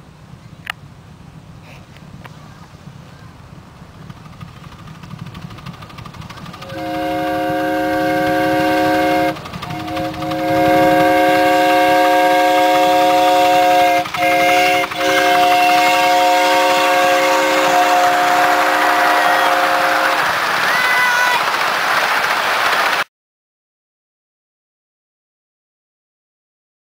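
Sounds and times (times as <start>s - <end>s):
steam whistle chord blasts: 6.6s - 20.3s.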